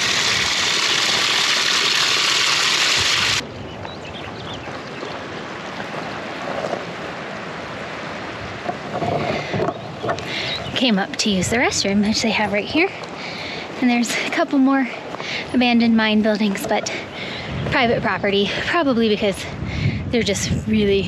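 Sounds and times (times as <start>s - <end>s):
rushing mountain water: 0.0s - 10.8s.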